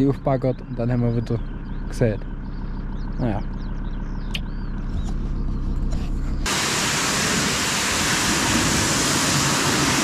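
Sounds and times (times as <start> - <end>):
low hum: 0.0 - 10.0
pressure washer jet hissing: 6.5 - 10.0.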